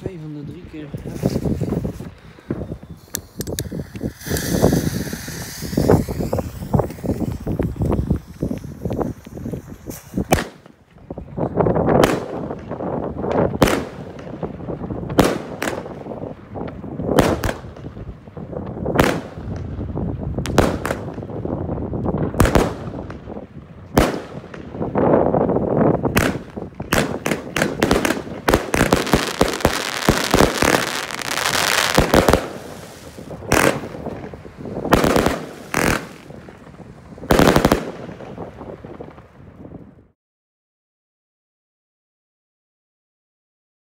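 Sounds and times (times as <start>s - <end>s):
fireworks banging: 0.0s - 39.8s.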